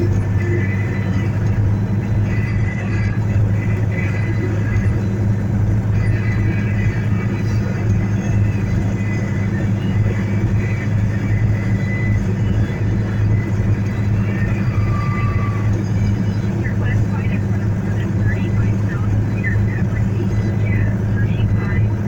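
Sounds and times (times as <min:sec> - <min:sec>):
vehicle engine idling: 0:00.0 - 0:22.0.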